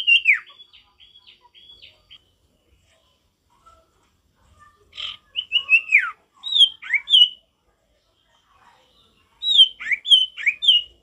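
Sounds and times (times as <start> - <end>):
bird singing whistled notes: 0.0 - 2.2, 5.1 - 7.4, 9.4 - 11.0.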